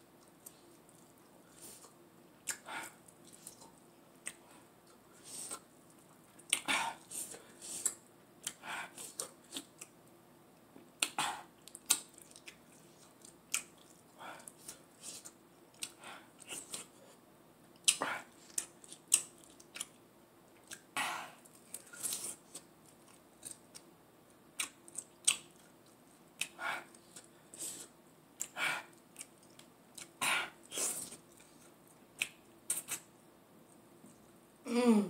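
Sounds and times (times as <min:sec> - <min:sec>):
wet chewing and smacking: 0:11.0 - 0:16.9, 0:17.8 - 0:20.0, 0:20.6 - 0:23.9, 0:24.5 - 0:27.3, 0:28.4 - 0:33.1.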